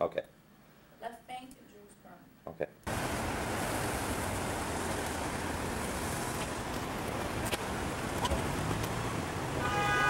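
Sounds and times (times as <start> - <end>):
passing traffic: 2.9 - 10.0.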